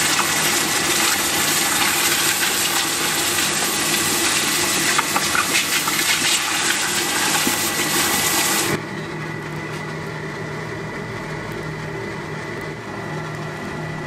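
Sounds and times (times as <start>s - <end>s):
water boiling and hissing: 0.0s - 8.8s
forge hum: 0.0s - 14.0s.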